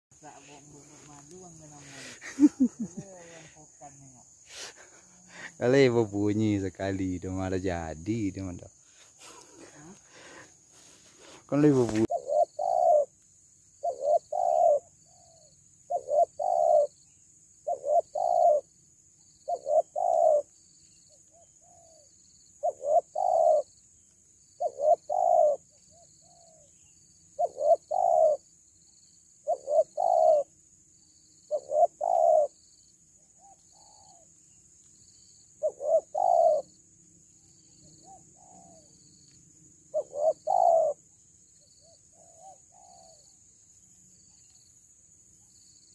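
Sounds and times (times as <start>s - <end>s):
faint insect whine: 0.1s - 45.9s
dove cooing: 11.8s - 13.1s, 13.8s - 17.0s, 17.6s - 18.7s, 19.4s - 20.5s, 21.3s - 23.8s, 24.6s - 26.7s, 27.3s - 28.4s, 29.4s - 30.6s, 31.5s - 32.6s, 33.3s - 34.3s, 35.6s - 36.7s, 37.8s - 39.1s, 39.9s - 41.0s, 41.8s - 43.3s.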